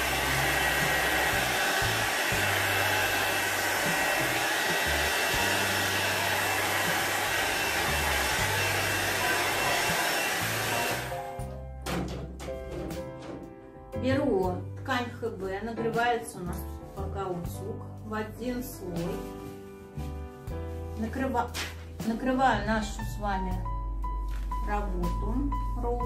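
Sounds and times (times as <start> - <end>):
hair dryer blowing: 0.0 - 11.4.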